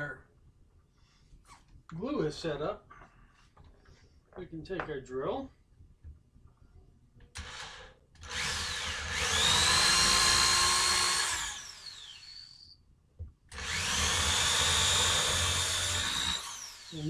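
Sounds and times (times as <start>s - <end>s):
electric drill whining: 7.4s - 12.7s, 13.5s - 17.0s.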